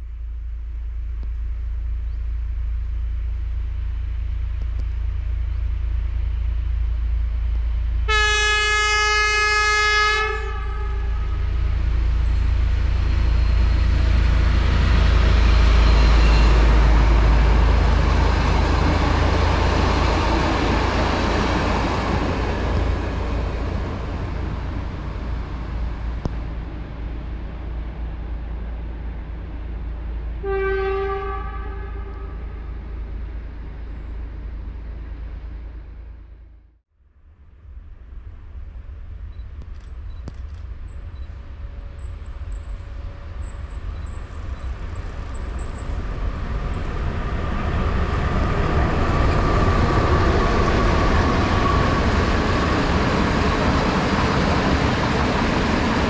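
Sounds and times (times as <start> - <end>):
diesel locomotive engine rumble: 0.0 - 56.0
train horn: 8.1 - 11.9, 30.4 - 32.7
train wheels on rails: 10.3 - 30.6, 37.6 - 56.0.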